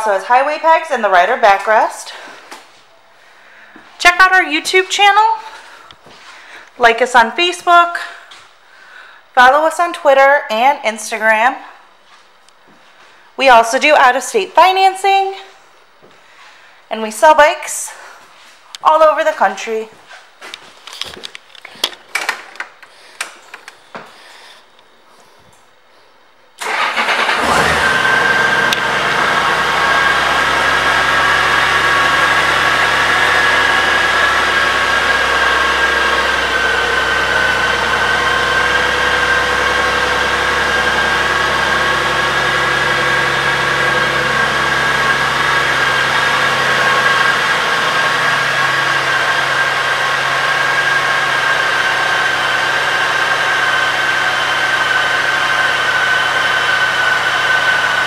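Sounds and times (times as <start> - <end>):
motorcycle engine idling: 28.5 - 58.0.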